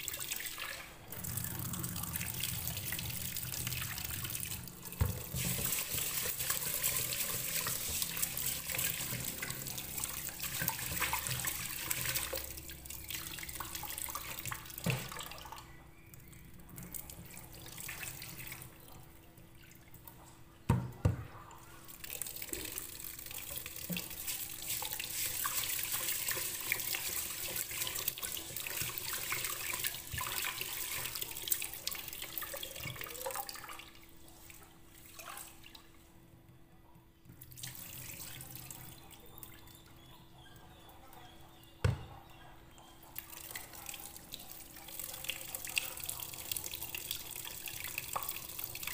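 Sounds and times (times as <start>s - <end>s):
rice washed by hand: 0.0s - 12.6s, 22.0s - 33.6s.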